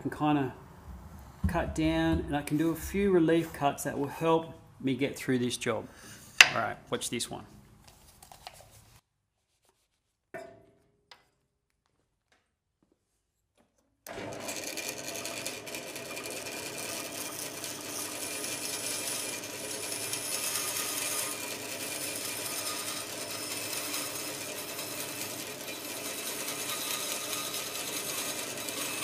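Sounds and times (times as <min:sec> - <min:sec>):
bandsaw cutting wood: 0:14.1 - 0:29.0.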